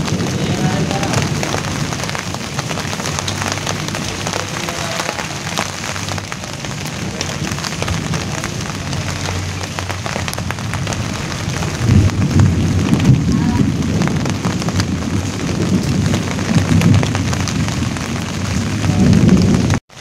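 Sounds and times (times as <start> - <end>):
rain falling on leaves: 0.0 - 20.0.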